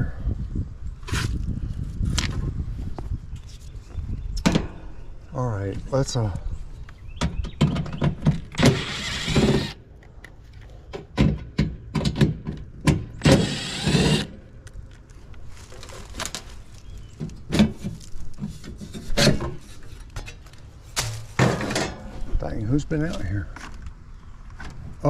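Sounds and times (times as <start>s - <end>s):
cordless driver whirring: 8.5s - 9.8s, 13.2s - 14.4s.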